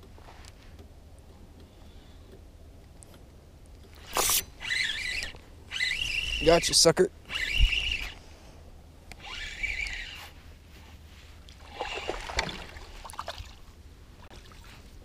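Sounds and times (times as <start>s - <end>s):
fish splashing in water: 11.6s - 13.7s.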